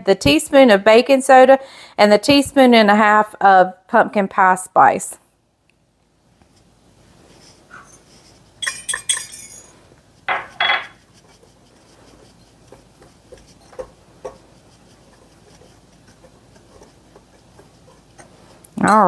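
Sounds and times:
kitchenware clinking on glass bowl: 7.8 - 9.7, 10.3 - 11.0
whisk stirring in glass bowl: 10.1 - 18.8.

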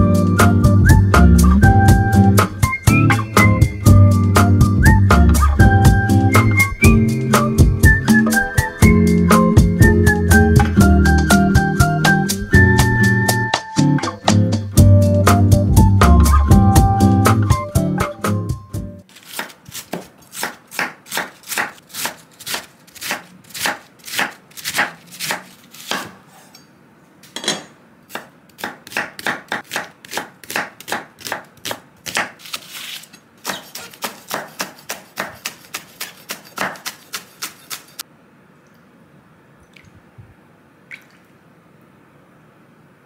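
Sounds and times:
knife slicing on wooden board: 19.1 - 26.5, 29.7 - 38.0.

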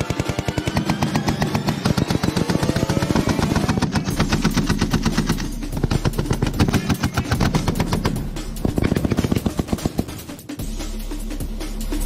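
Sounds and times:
machine gun firing bursts: 0.0 - 10.4.

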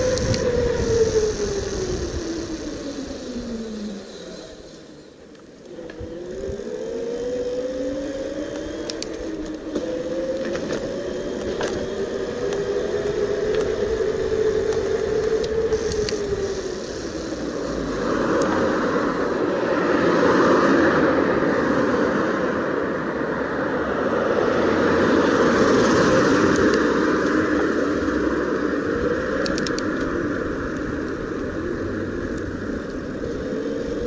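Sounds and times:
sharp ticks: 0.0 - 0.5, 8.5 - 9.6, 14.6 - 16.3, 29.4 - 30.1
electric bike motor whining: 0.0 - 22.4, 24.2 - 34.0.

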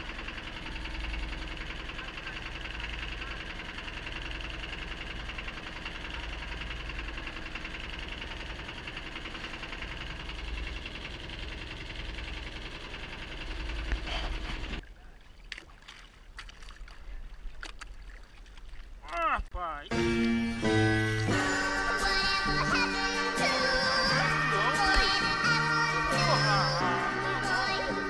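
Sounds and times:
boat engine running: 0.0 - 28.0
water sloshing at hull: 13.9 - 19.5.

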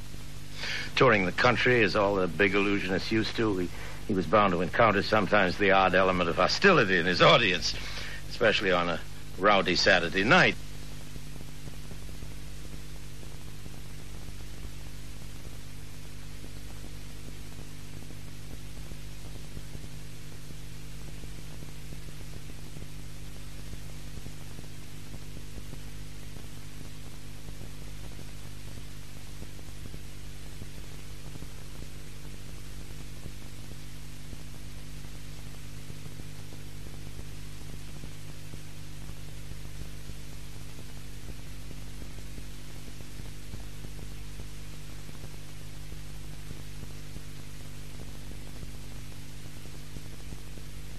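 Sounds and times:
electrical hum with hiss: 0.0 - 50.9.

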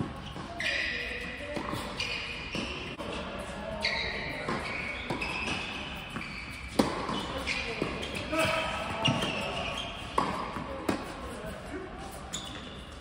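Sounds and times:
tennis ball bouncing and struck: 4.5 - 9.4, 10.2 - 11.1.

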